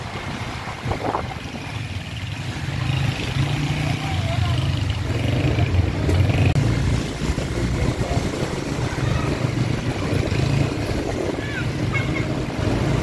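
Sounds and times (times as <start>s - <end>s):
road noise: 0.0s - 13.0s.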